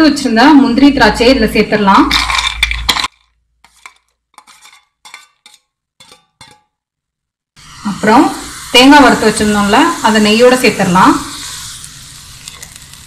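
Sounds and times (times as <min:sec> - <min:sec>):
metal spoon scraping steel plate: 0:02.1 - 0:06.7, 0:11.4 - 0:12.9.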